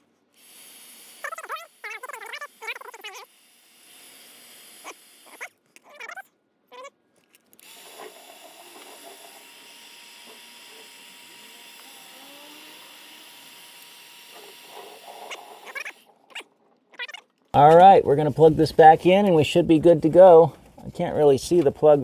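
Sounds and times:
heat gun blowing hot air: 7.6 - 16.0.

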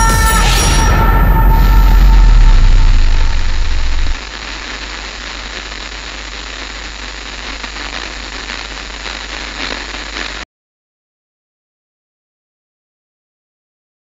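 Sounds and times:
low hum: 0.0 - 4.2
static hiss: 1.8 - 10.4
faint crackles: 2.8 - 10.4.

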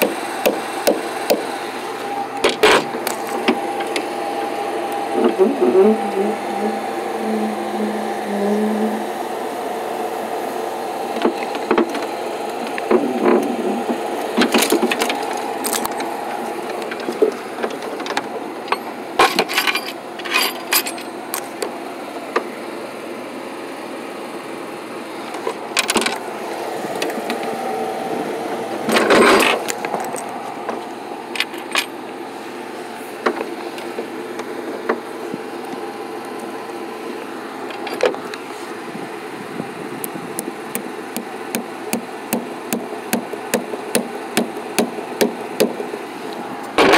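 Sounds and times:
truck engine and hydraulic hum: 0.0 - 46.9.

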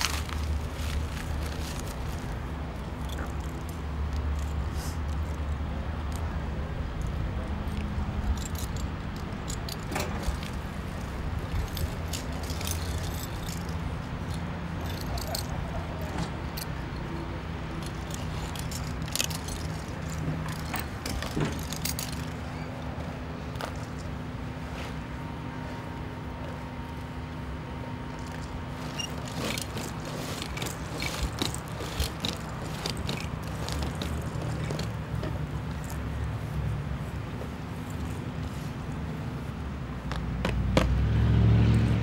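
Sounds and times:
metallic clinks of climbing gear: 0.0 - 6.3, 6.9 - 24.2, 28.1 - 36.1.

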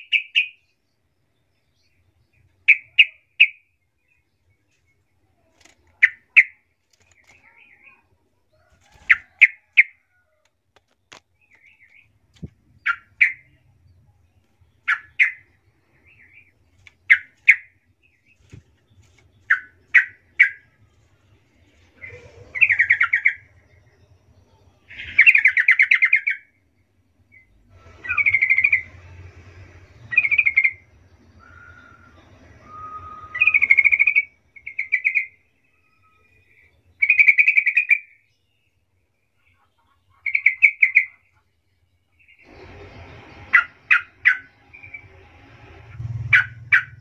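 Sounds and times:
bird whistled phrases: 31.4 - 38.0.

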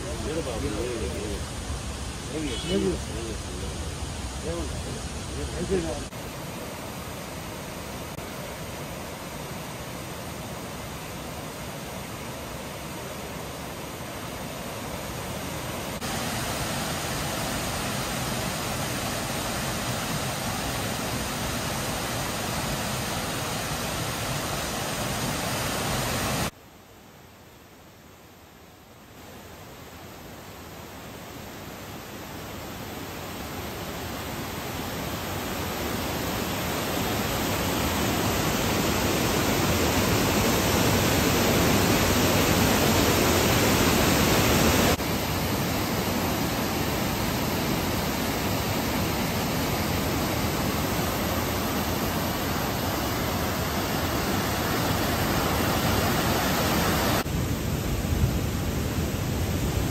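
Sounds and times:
water rushing down spillway: 9.4 - 26.6, 33.5 - 57.4.

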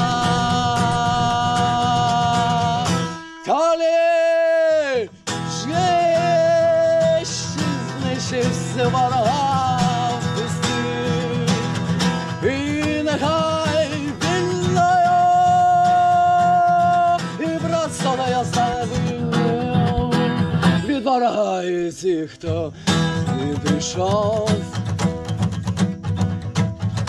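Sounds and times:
person singing melismatic notes: 0.0 - 11.7
guitar accompaniment: 0.0 - 27.0.

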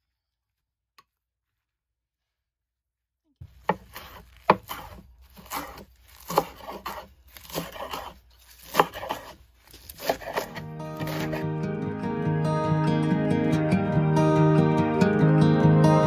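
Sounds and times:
leaves crunching: 3.4 - 11.4.

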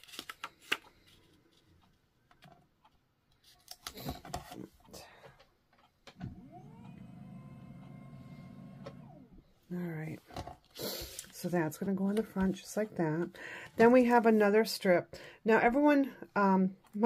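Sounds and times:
low steady hum: 6.2 - 10.0.

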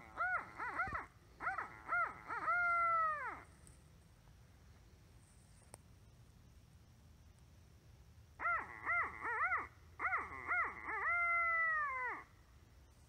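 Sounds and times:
owl call hoots: 0.0 - 3.6, 8.4 - 12.4.

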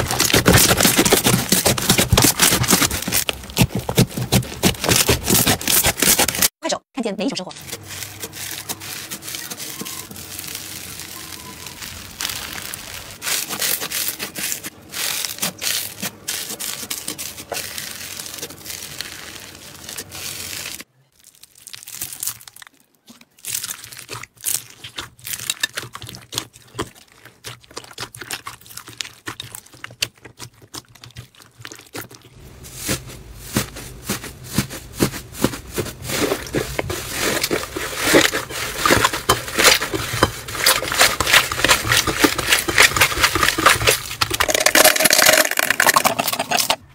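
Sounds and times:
slime crackling and popping: 0.0 - 6.3, 7.8 - 33.0, 36.1 - 46.8.

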